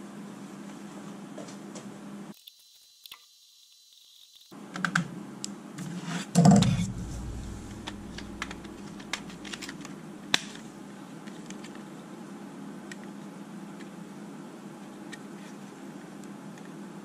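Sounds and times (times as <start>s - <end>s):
heavier knock: 6.4s - 9.6s
low steady hum: 6.4s - 11.1s.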